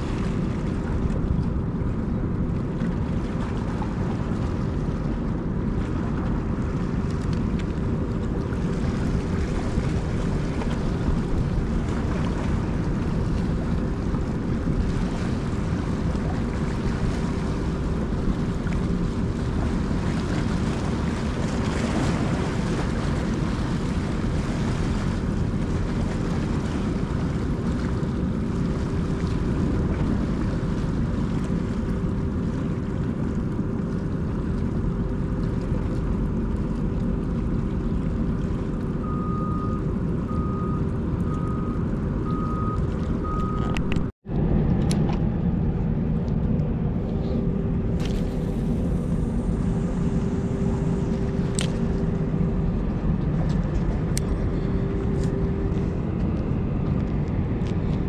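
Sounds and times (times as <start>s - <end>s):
constant hum: 0.0s - 58.0s
low rumble of machinery and traffic: 0.0s - 58.0s
reversing alarm beeping: 39.0s - 44.1s.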